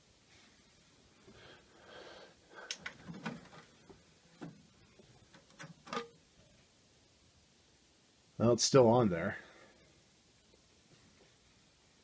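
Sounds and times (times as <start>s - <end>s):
disc tray clicks and clunks: 2.7s - 6.2s.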